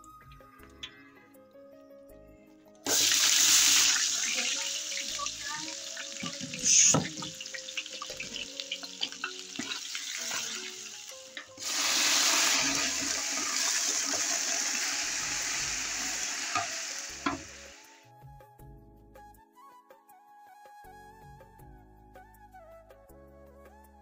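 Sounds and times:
water poured into hot pot: 2.9s - 17.9s
onions sizzling in oil: 2.9s - 18.0s
metal utensils scraping pot: 6.2s - 14.2s.

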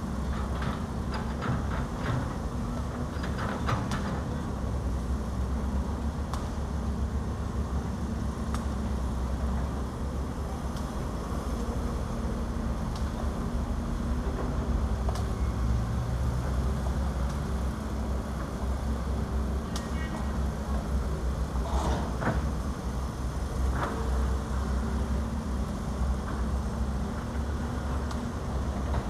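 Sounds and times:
heavy diesel engines rumbling: 0.0s - 29.0s
metal clanks and scrapes: 21.6s - 22.2s.

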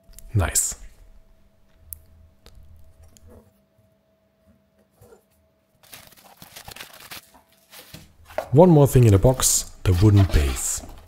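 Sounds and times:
bubble wrap crackling: 5.8s - 8.1s.

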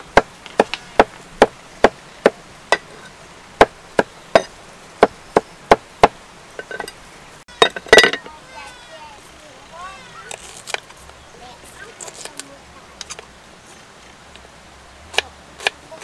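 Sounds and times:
cleaver chopping on wooden board: 3.6s - 6.2s.

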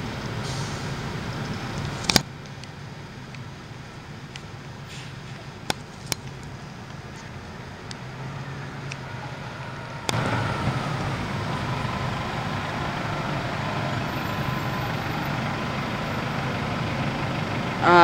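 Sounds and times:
bus diesel engine rumbling: 0.0s - 18.0s.

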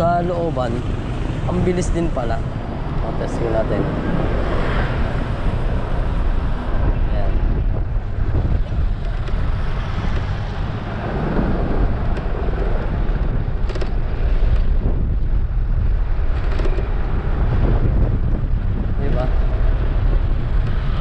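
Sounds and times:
road noise: 0.0s - 21.0s
wind buffeting microphone: 0.0s - 21.0s.

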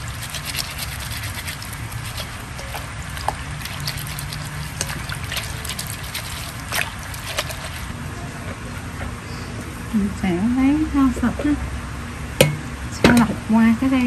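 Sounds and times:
water trickling and splashing: 0.0s - 8.0s
hands squelching wet leaves: 0.0s - 9.5s.

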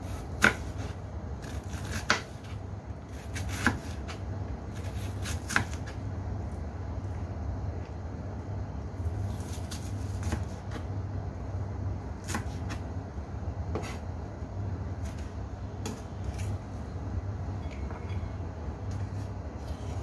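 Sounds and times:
steady low hum: 0.0s - 20.0s
knife chopping on wooden board: 0.4s - 2.4s, 4.9s - 5.9s.

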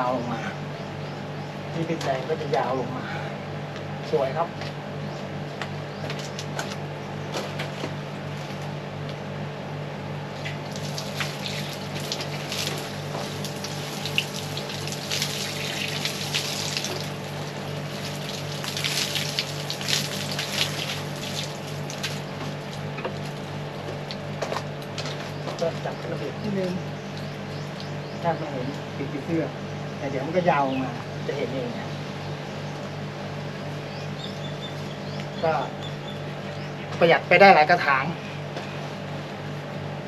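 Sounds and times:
steady low hum: 0.0s - 40.0s
garden hose water spraying: 10.5s - 25.0s.

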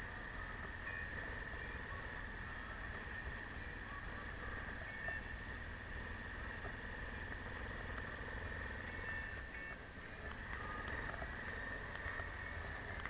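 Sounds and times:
motorcycle engine at low revs: 0.0s - 13.0s.

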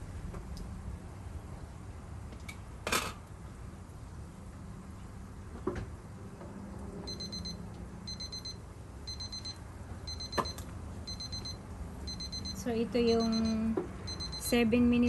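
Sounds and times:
kitchen timer beeping: 7.1s - 14.7s.

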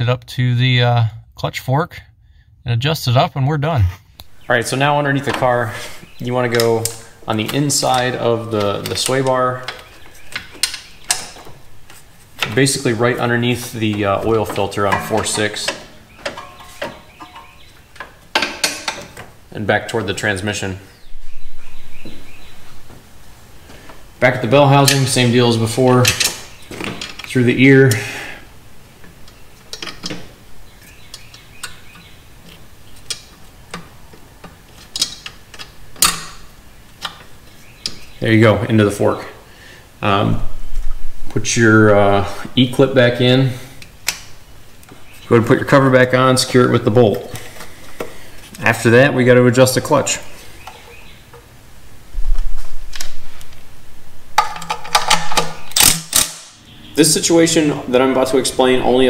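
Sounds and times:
metal cover handling and knocking: 13.9s - 19.3s, 54.4s - 56.2s.

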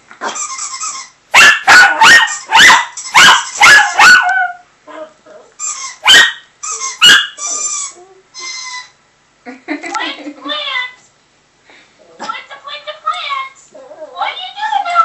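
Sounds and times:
squeaky toy: 0.2s - 1.2s, 5.6s - 9.0s
small dog yapping: 1.3s - 5.1s, 6.0s - 7.6s.

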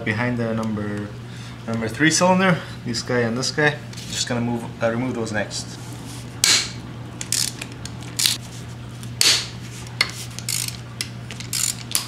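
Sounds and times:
steady low hum: 0.0s - 12.0s
ratchet wrench clicking: 7.2s - 8.4s, 10.4s - 12.0s.

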